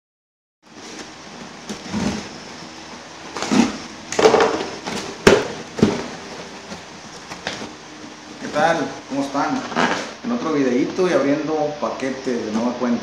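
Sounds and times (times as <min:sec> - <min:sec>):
cardboard snapping: 0:00.8 - 0:02.6, 0:03.2 - 0:10.1
cardboard box tearing: 0:00.8 - 0:10.2.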